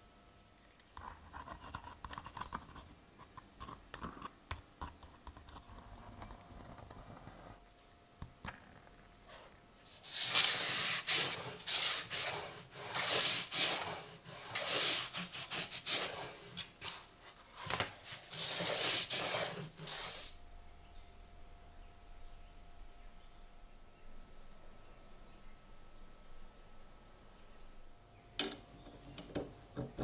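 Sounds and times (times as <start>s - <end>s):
cloth rubbing on steel blade: 9.9s - 17.0s, 18.1s - 20.4s.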